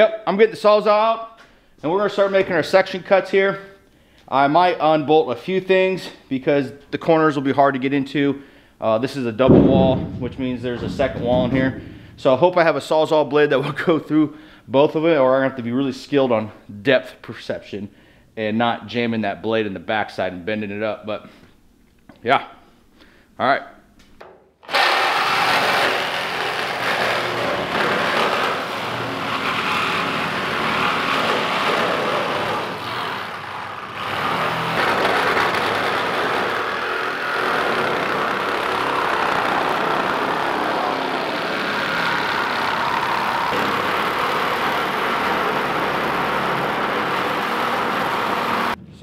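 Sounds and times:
reciprocating saw cutting steel: 0:24.7 - 0:48.8.

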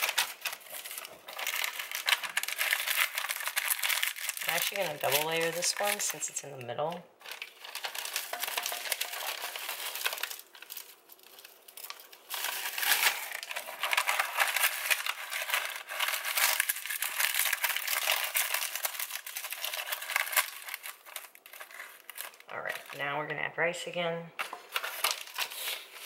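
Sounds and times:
dry seaweed sheets crinkling: 0:00.0 - 0:23.2, 0:24.4 - 0:26.0.

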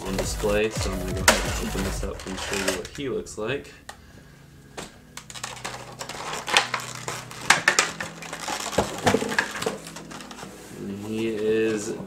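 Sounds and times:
plastic packaging crinkling: 0:01.2 - 0:03.2, 0:05.0 - 0:11.8.

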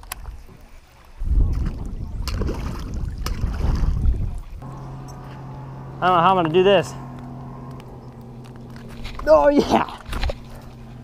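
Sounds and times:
small waves lapping on rocks: 0:00.0 - 0:04.1
wind rumbling on microphone: 0:01.2 - 0:05.4.

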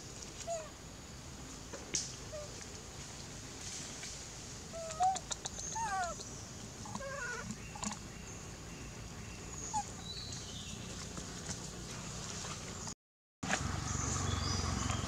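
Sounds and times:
macaques calling: 0:04.8 - 0:06.2, 0:06.8 - 0:07.5.

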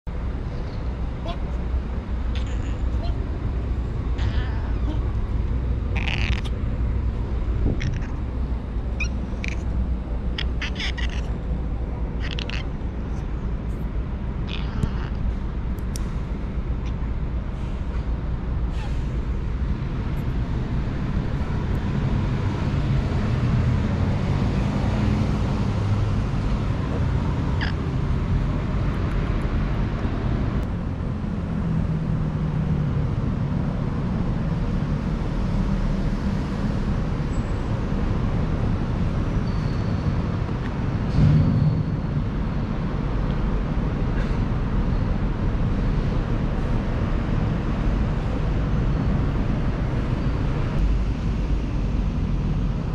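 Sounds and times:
low background rumble: 0:00.2 - 0:24.0
loud bump: 0:41.1 - 0:42.2.

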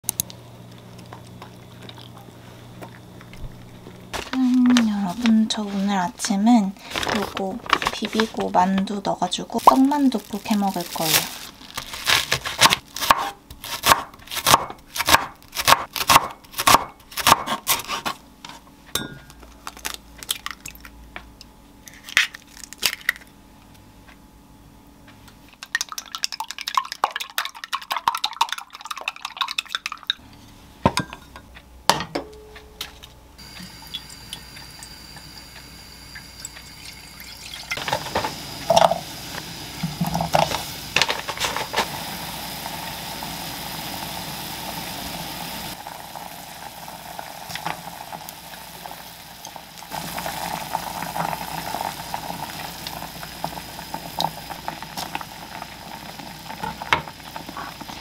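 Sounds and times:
pot of water hissing: 0:01.6 - 0:12.1, 0:33.4 - 0:58.0
knife chopping on wooden board: 0:12.3 - 0:18.2
chopsticks beating eggs in bowl: 0:25.5 - 0:30.2.

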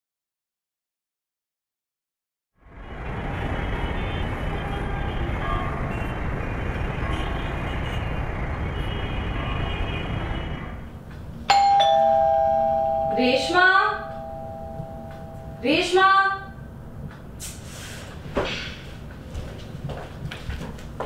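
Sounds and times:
city traffic noise: 0:02.6 - 0:21.0
two-tone doorbell chime: 0:11.5 - 0:16.0.

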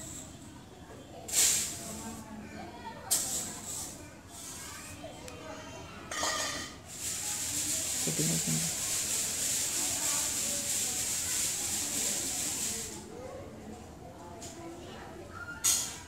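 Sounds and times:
faint voices: 0:00.0 - 0:16.0
steady high hiss: 0:07.0 - 0:13.0.

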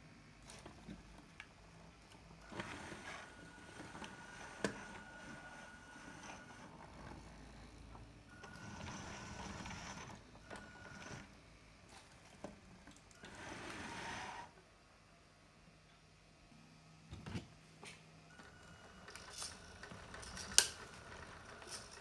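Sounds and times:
small electric motor whining: 0:02.4 - 0:11.3.

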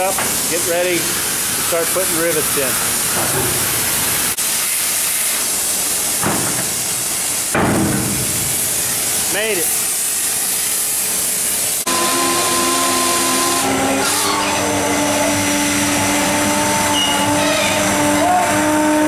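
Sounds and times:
cutting torch hissing: 0:00.0 - 0:19.0
drill whining: 0:11.8 - 0:19.0.

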